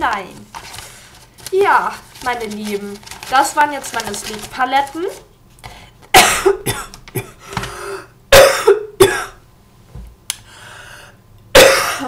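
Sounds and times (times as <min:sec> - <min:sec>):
woman coughing: 0:06.1 - 0:07.4, 0:08.3 - 0:09.4, 0:11.6 - 0:12.0
gasping breaths: 0:07.4 - 0:08.1.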